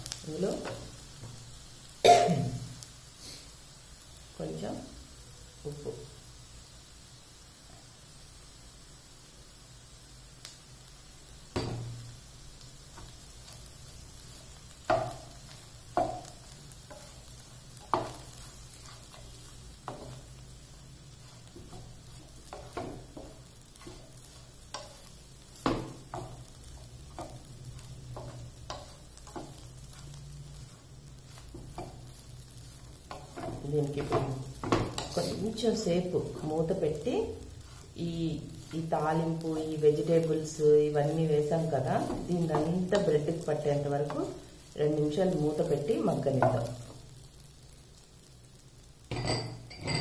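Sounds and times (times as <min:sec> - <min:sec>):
frying sizzle: 0:00.0 - 0:50.0
spatula scraping pan: 0:13.0 - 0:40.6.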